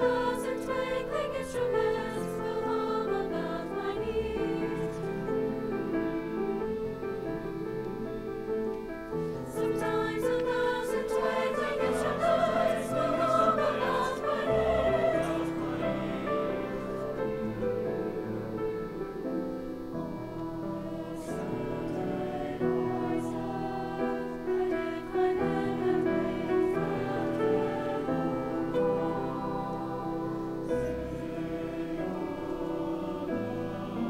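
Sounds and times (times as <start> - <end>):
mixed choir singing: 0.0 - 34.0.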